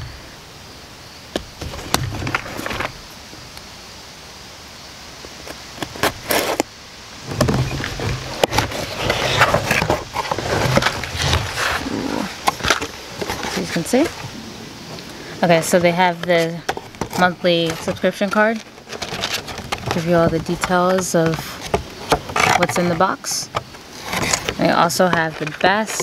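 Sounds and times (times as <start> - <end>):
cardboard and paper rustling: 1.6 - 3.0, 5.8 - 14.4, 15.0 - 26.0
knife cutting cardboard: 7.4 - 14.3.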